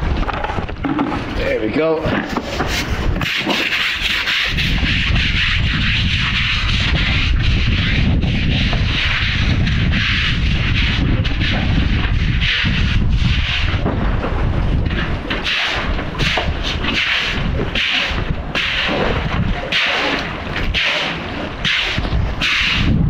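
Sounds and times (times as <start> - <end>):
wind rumbling on microphone: 0.0 - 23.0
high-pressure water spraying on paving: 3.2 - 13.8, 15.3 - 23.0.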